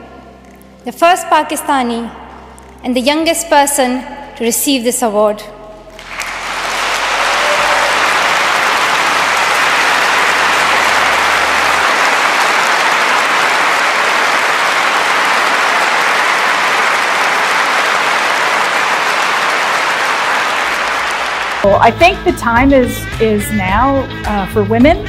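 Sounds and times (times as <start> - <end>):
audience applause: 6.0 - 21.7.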